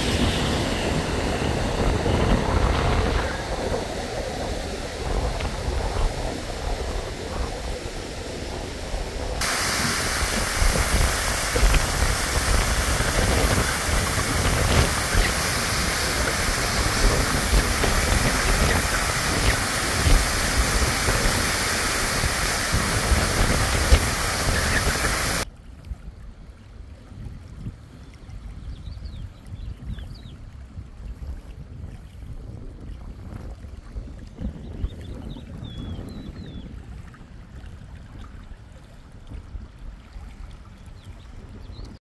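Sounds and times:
waterfall rushing: 0.0s - 25.4s
flowing stream: 0.0s - 42.0s
wind rumble on microphone: 0.0s - 42.0s.

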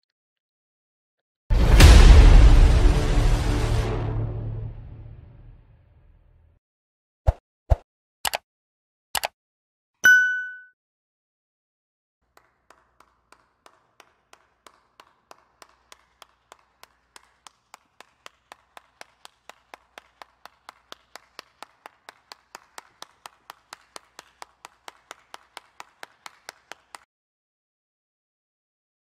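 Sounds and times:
person clapping hands: 12.2s - 27.1s.

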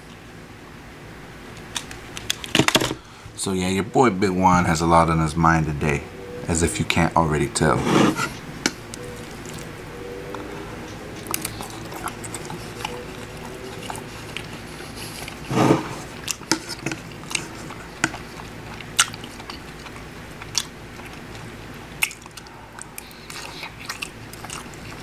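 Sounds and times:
man chewing food: 7.6s - 25.0s.

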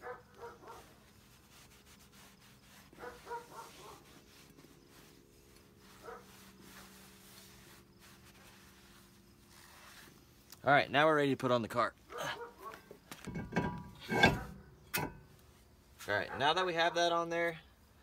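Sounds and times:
dog barking faintly: 0.0s - 0.9s, 3.0s - 4.1s, 12.1s - 12.8s, 16.1s - 16.7s.

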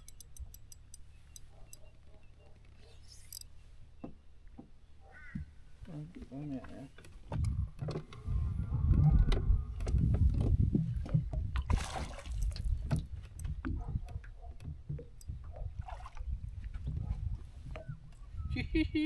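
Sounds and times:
fishing reel clicks and knocks: 0.0s - 2.0s
water and wind rumbling against boat: 0.0s - 19.0s.

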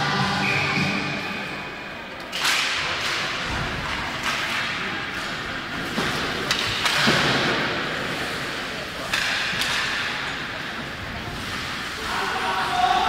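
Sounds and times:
hockey sticks and puck clacking: 2.2s - 13.0s
skate blades scraping ice: 3.4s - 13.0s.

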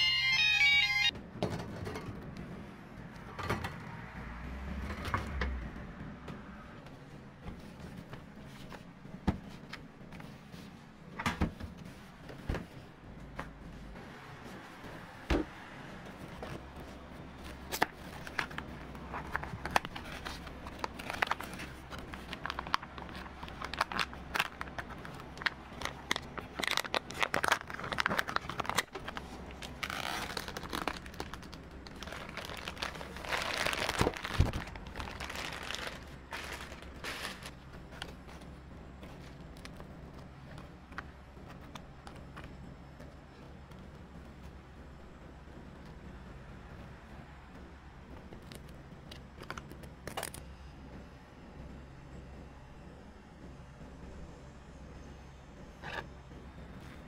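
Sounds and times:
low steady hum: 0.0s - 57.0s
packaging crinkling and tearing: 17.5s - 38.2s.

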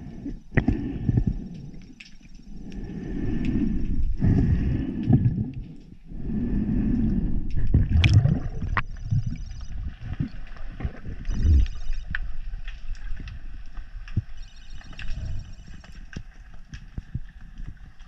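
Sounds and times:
underwater water surges: 0.0s - 14.0s
underwater clicks: 0.3s - 18.0s.

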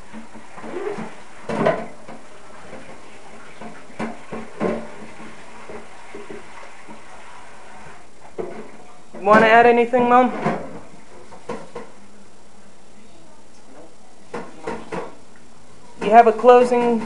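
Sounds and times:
steady hiss: 0.0s - 9.9s.

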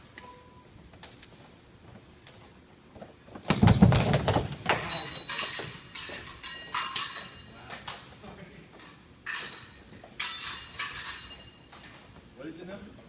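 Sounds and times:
stamping footwork: 3.4s - 5.9s
fencing blades clashing: 3.6s - 8.1s, 8.8s - 12.2s.

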